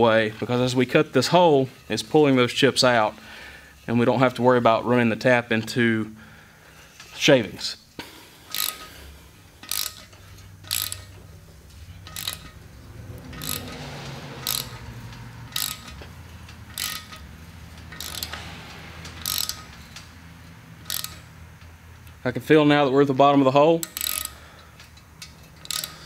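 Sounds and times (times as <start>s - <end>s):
hand ratchet clicking: 8.0s - 22.2s, 23.7s - 26.0s.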